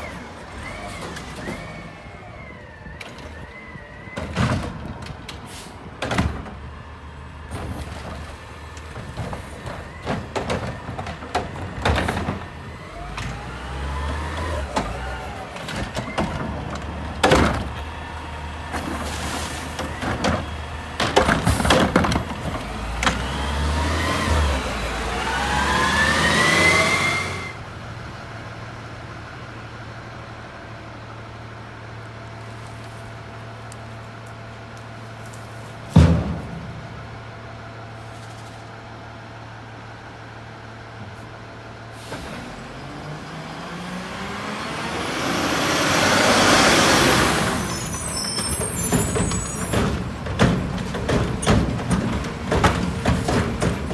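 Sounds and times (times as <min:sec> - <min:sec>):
bangs and clanks of carts: 0:00.0 - 0:02.4, 0:03.0 - 0:06.8, 0:07.4 - 0:27.6, 0:35.8 - 0:37.3, 0:44.8 - 0:53.9
truck idling: 0:00.0 - 0:24.0, 0:27.5 - 0:53.9
truck engine revving whine: 0:09.8 - 0:53.9.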